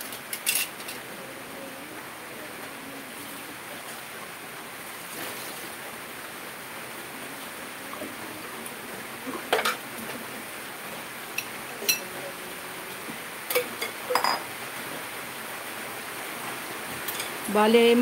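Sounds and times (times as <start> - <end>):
heavy rain hissing: 0.0 - 18.0
kitchenware clinking: 0.3 - 1.0, 9.5 - 9.8, 11.4 - 12.1, 13.5 - 14.5.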